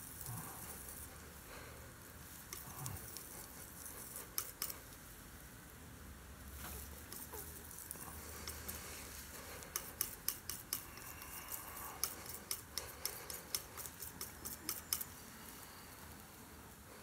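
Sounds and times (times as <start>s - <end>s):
palette knife clicking in paint: 4.2s - 4.8s, 9.6s - 15.1s.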